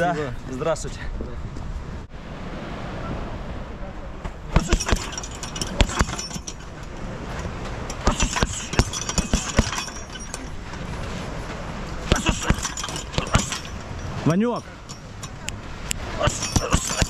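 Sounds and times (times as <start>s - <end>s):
punches thudding into heavy bag: 4.5s - 6.4s, 8.0s - 10.0s, 12.0s - 13.7s, 16.2s - 17.0s
chain clinking and jangling: 4.6s - 11.4s, 12.1s - 15.5s, 16.2s - 17.0s.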